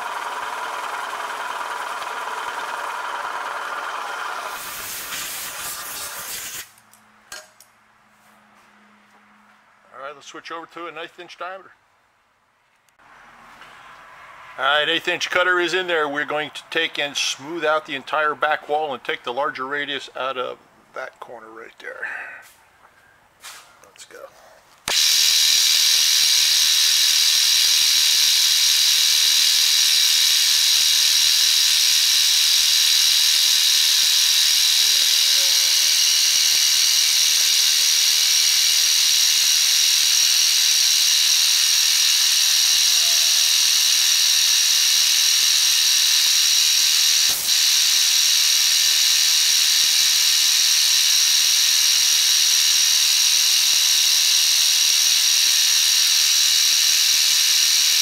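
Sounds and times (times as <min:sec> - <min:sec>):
milling machine cutting steel: 0:00.0 - 0:06.7, 0:24.9 - 0:58.0
high-pitched whine and hiss: 0:04.6 - 0:06.8, 0:24.9 - 0:58.0.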